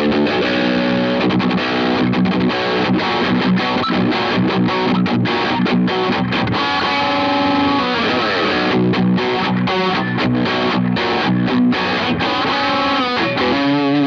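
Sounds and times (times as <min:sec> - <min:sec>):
distorted electric guitar: 0:00.0 - 0:14.0.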